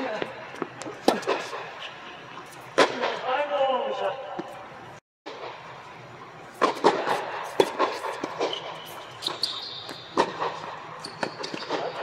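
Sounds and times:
racket strikes and ball bounces: 0.6 - 1.7, 2.4 - 3.3, 6.5 - 12.0
shoe squeaks: 8.4 - 10.3, 11.0 - 12.0.

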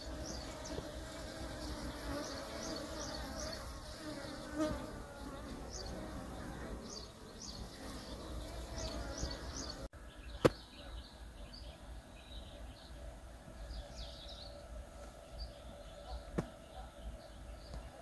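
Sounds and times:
bees buzzing: 0.0 - 9.9.

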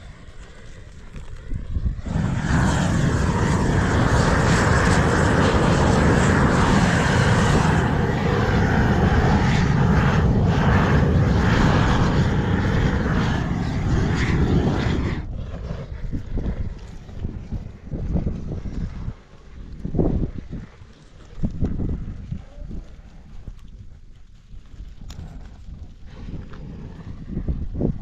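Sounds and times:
gas torch rushing: 1.9 - 15.3.

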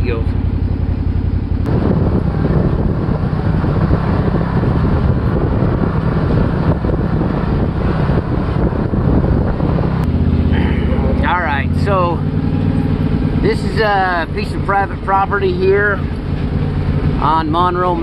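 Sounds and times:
off-road vehicle engine running: 0.0 - 18.0
wind buffeting microphone: 0.0 - 18.0.

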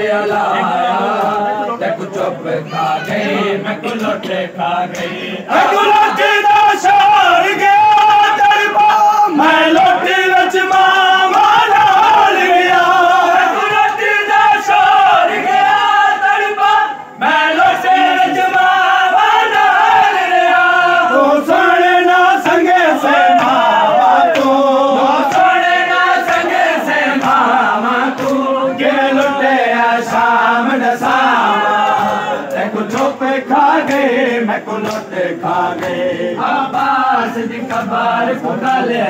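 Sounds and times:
crowd of men chanting: 0.0 - 39.0
hands slapping chests: 22.4 - 28.5, 33.8 - 34.2, 34.8 - 36.1.

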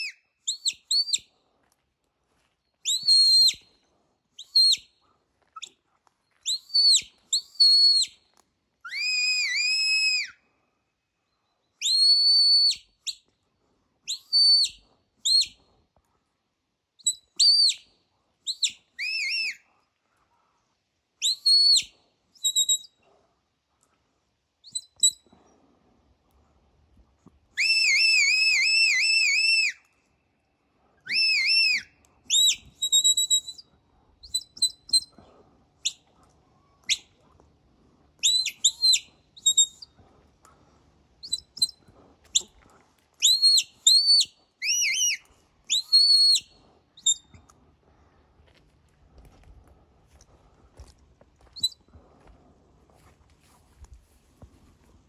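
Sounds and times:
shepherd's whistle notes: 0.0 - 1.3, 2.8 - 3.7, 4.4 - 4.9, 6.4 - 8.1, 8.8 - 10.4, 11.8 - 13.2, 14.1 - 15.6, 17.0 - 17.9, 18.5 - 19.6, 21.2 - 23.0, 24.6 - 25.2, 27.6 - 29.8, 31.0 - 35.1, 38.2 - 39.9, 41.2 - 42.5, 43.2 - 47.4.

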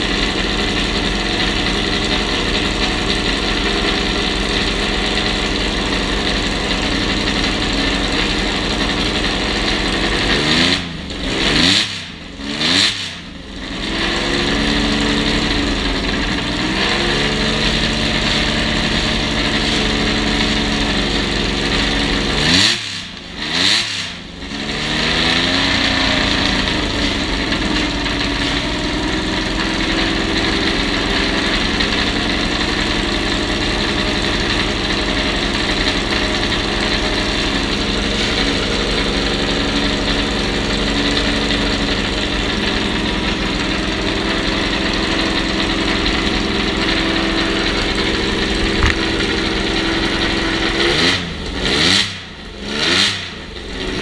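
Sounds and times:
car engine idling: 0.0 - 54.0
engine revving blips: 10.2 - 15.0, 45.2 - 54.0.

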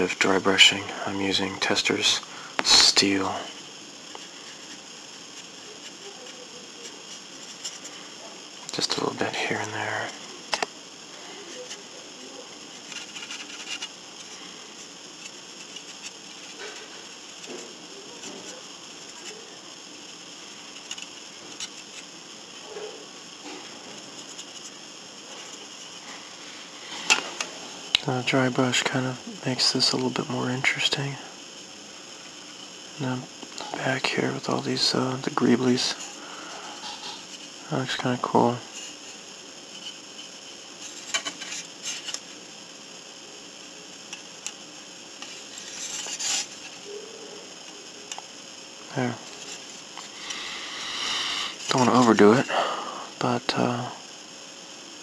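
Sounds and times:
steady hiss: 0.0 - 55.0
paintbrush scraping plastic: 12.8 - 19.4, 45.2 - 46.7.

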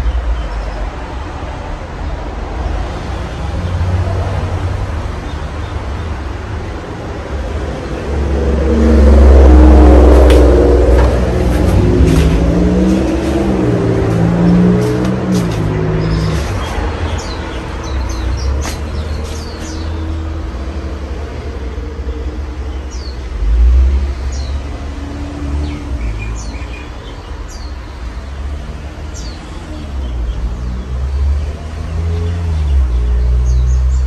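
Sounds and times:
birds chirping: 11.6 - 20.4.

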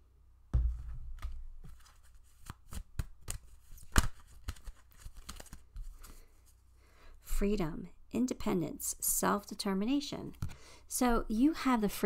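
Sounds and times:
cards shuffling snaps and taps: 1.2 - 6.3, 10.3 - 10.6.

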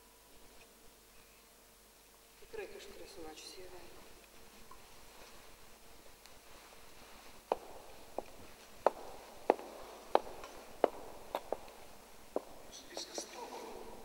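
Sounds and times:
faint room hiss: 0.0 - 14.0
slow footsteps: 3.9 - 14.0.

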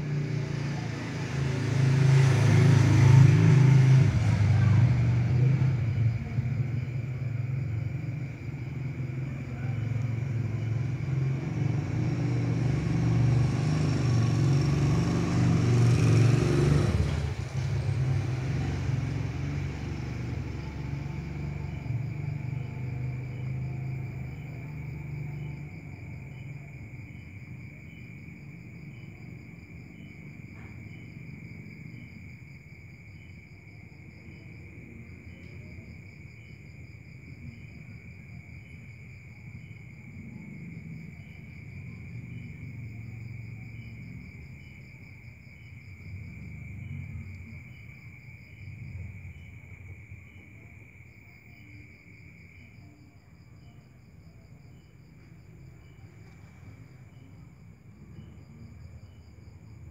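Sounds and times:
crickets trilling: 0.0 - 59.9
low uneven rumble: 53.7 - 59.9.

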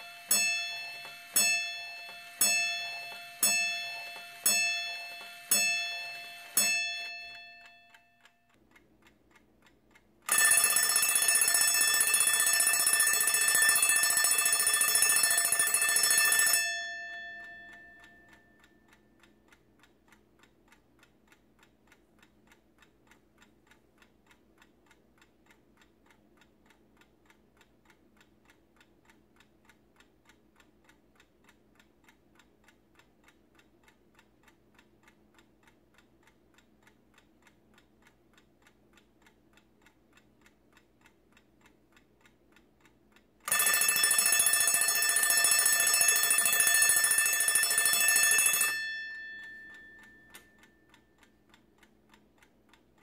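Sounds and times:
alarm clock bell ringing: 0.0 - 8.4, 10.3 - 18.9, 43.5 - 50.9
clock ticking: 0.0 - 53.0.

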